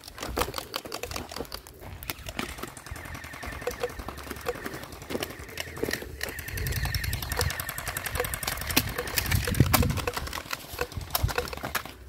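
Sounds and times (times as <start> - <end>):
gel blasters firing: 2.9 - 10.2.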